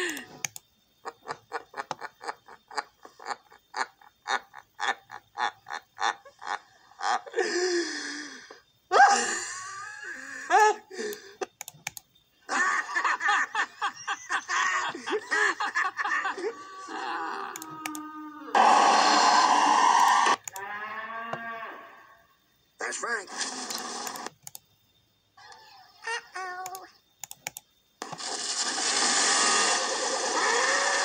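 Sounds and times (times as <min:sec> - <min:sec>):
man laughing in video playback: 0:01.0 - 0:07.9, 0:09.0 - 0:11.6, 0:12.5 - 0:17.8
computer keyboard typing: 0:11.6 - 0:12.0, 0:23.7 - 0:24.6, 0:26.7 - 0:27.6.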